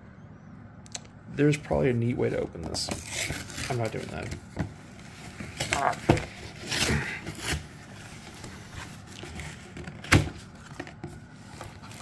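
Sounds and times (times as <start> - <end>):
cardboard scraping and rustling: 2.7 - 12.0.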